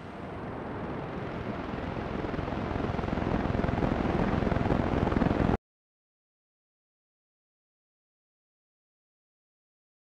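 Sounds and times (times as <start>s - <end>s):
low rumbling whir with flutter: 0.0s - 5.6s.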